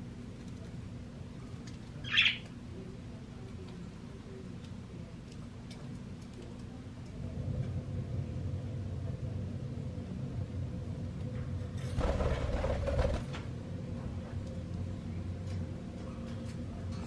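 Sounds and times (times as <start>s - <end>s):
steady low hum: 0.0s - 17.0s
bird wings fluttering: 12.0s - 13.4s.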